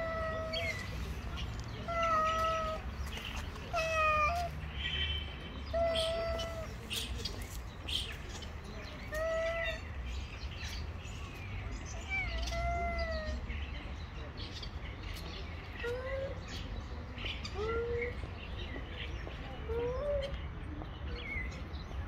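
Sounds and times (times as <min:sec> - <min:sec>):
tomcats yowling: 0:00.0 - 0:00.8, 0:01.8 - 0:02.8, 0:03.7 - 0:04.5.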